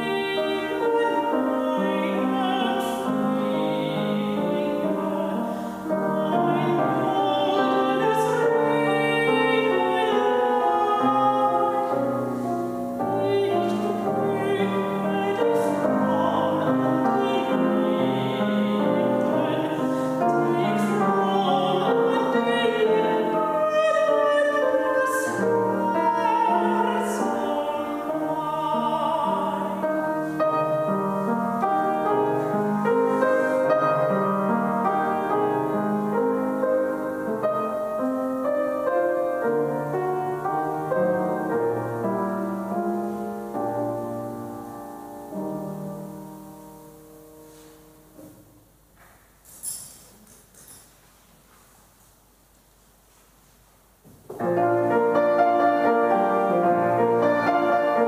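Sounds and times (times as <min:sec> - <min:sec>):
woman singing with vibrato: 0:00.0 - 0:38.0
grand piano: 0:00.0 - 0:58.0.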